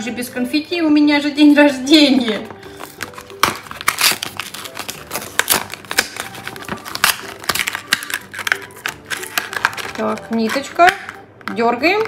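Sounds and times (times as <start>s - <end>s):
plastic packaging crinkling: 2.4s - 11.5s.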